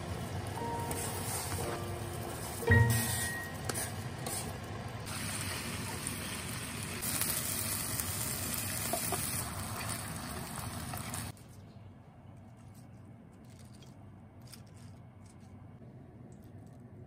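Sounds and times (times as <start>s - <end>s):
chicken sizzling in frying pan: 2.2s - 11.3s.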